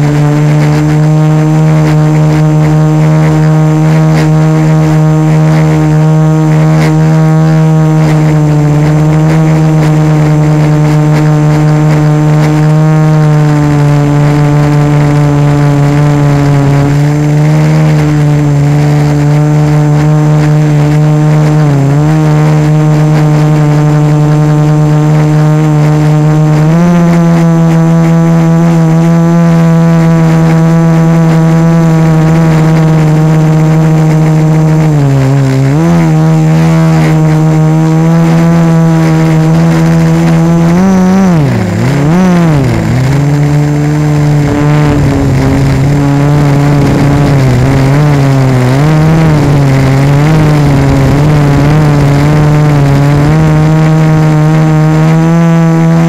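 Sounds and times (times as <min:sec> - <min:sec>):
quadcopter motors buzzing whine: 0:00.0 - 0:56.0.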